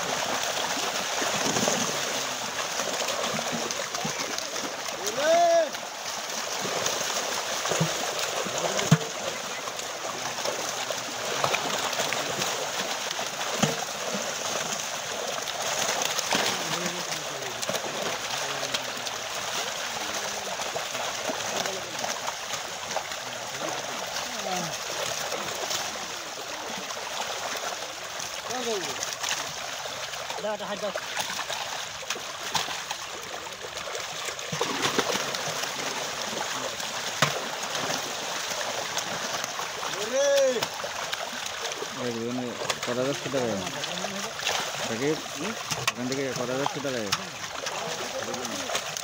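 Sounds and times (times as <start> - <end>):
fish thrashing and splashing: 0.0 - 49.0
sharp water slaps: 0.0 - 49.0.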